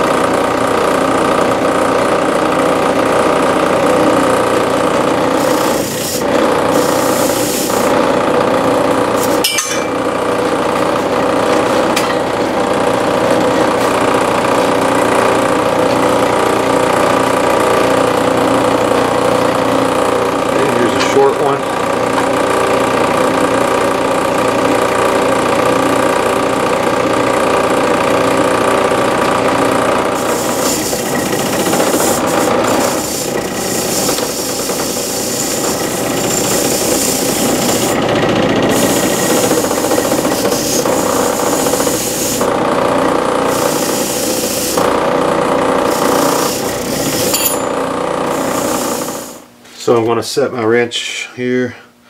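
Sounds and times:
machine hum: 0:00.0 - 0:52.0
rasping hissing tool work: 0:05.3 - 0:08.0, 0:30.2 - 0:38.0, 0:38.6 - 0:42.5, 0:43.5 - 0:44.9, 0:45.9 - 0:47.4, 0:48.3 - 0:49.5.

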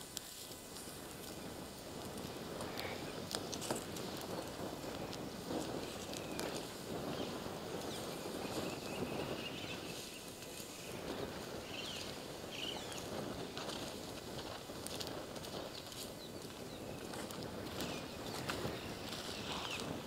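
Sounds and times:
steady rushing noise: 0:00.0 - 0:20.0.

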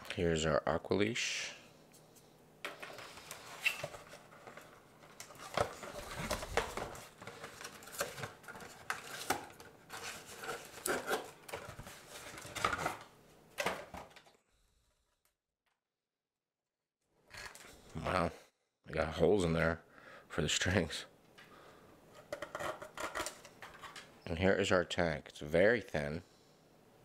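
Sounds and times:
plastic scraping against cardboard: 0:02.8 - 0:13.0.

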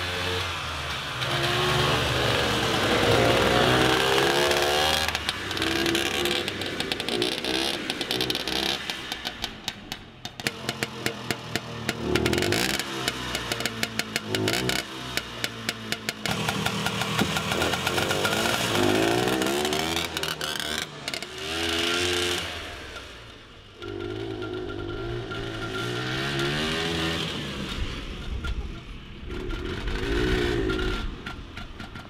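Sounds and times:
snowmobile engine revving: 0:00.0 - 0:09.4, 0:10.5 - 0:28.6, 0:29.2 - 0:31.4
engine popping: 0:02.3 - 0:22.1.

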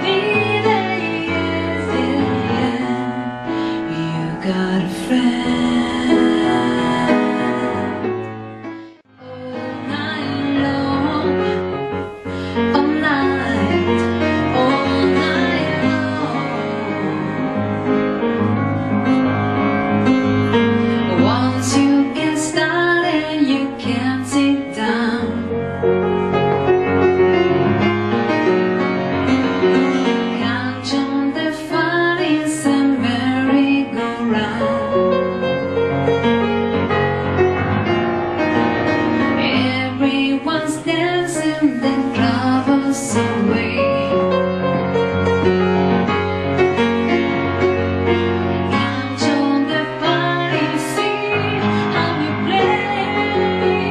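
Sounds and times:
woman singing: 0:00.0 - 0:08.2, 0:09.1 - 0:17.7, 0:21.0 - 0:25.7, 0:30.3 - 0:35.5, 0:39.4 - 0:44.5, 0:48.6 - 0:53.9
piano accompaniment: 0:00.0 - 0:53.9.

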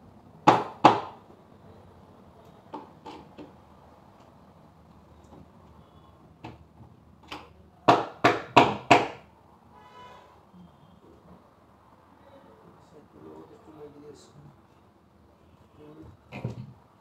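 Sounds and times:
knocks on wooden panels: 0:00.4 - 0:01.2, 0:06.4 - 0:09.3, 0:16.3 - 0:16.8.

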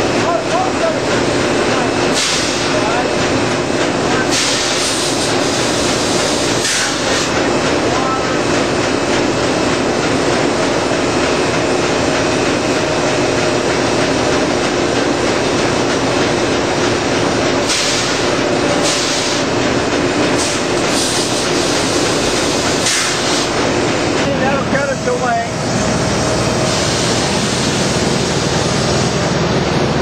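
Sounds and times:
sawmill machinery clatter and rumble: 0:00.0 - 0:30.0
steam hissing: 0:01.8 - 0:03.4, 0:04.1 - 0:08.5, 0:17.2 - 0:19.6, 0:20.2 - 0:24.2, 0:25.1 - 0:29.3.

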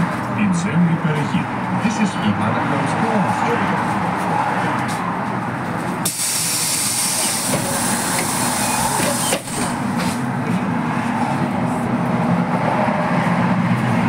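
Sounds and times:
trolleybus low hum: 0:00.0 - 0:14.0
compressed air hissing: 0:06.0 - 0:09.8.

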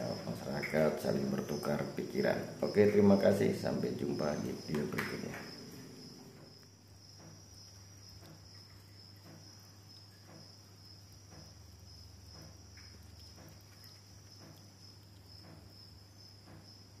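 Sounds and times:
high-pitched insect-like trill: 0:00.0 - 0:16.9
soft ticks: 0:12.4 - 0:15.7.

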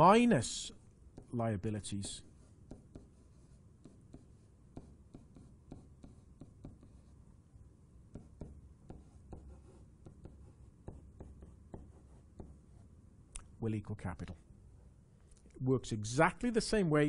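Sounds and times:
low steady hum: 0:00.0 - 0:17.0
stylus tapping and scratching: 0:00.9 - 0:07.1, 0:08.1 - 0:12.8.

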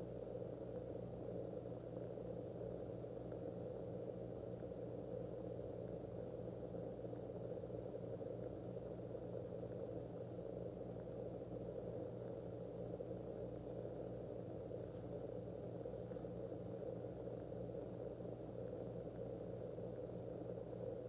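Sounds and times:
constant low hum: 0:00.0 - 0:21.0.

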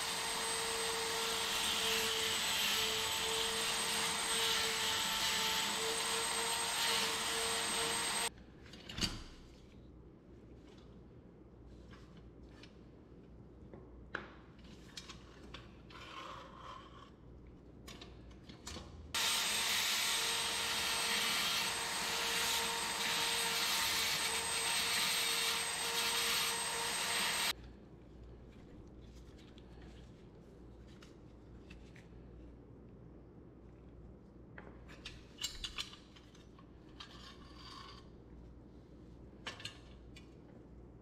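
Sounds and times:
rotary tool whining and grinding: 0:00.0 - 0:08.3, 0:19.2 - 0:27.5.

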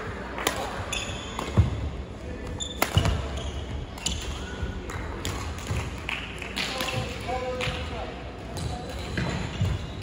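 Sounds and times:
shoes squeaking on court floor: 0:00.9 - 0:01.8, 0:02.4 - 0:04.7, 0:08.6 - 0:10.0.

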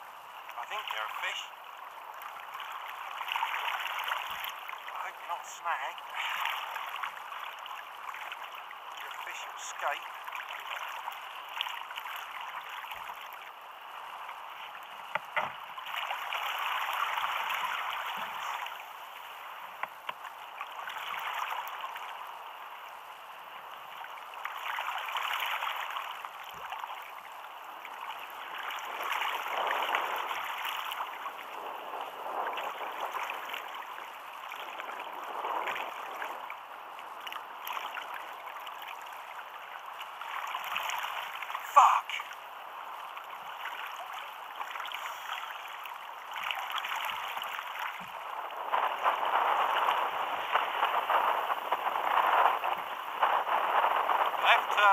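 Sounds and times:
sea water sloshing against hull: 0:00.4 - 0:54.9
faint knocks: 0:15.1 - 0:15.6.

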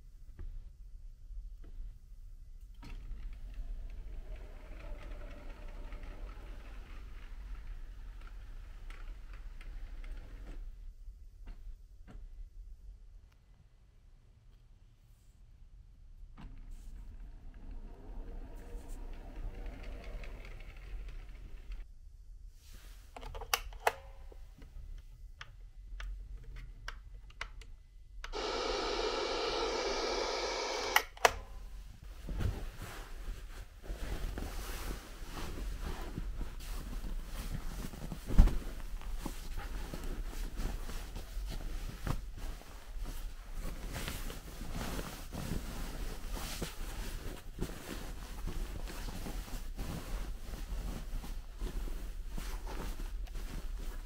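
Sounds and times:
pull-cord clicks: 0:23.2 - 0:24.2, 0:26.9 - 0:31.6
speaker playing steady tone: 0:28.3 - 0:31.3
fabric rustling: 0:31.8 - 0:54.0.

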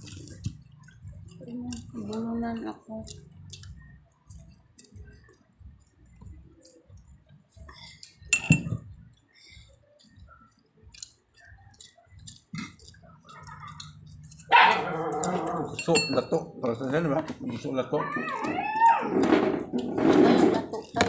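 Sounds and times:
clinks against plate: 0:08.3 - 0:08.8, 0:15.7 - 0:16.4
person chewing: 0:10.9 - 0:15.9.

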